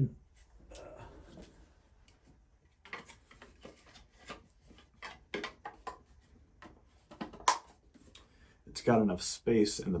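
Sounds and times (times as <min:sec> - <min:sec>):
plastic clicks and knocks: 0:02.8 - 0:07.8.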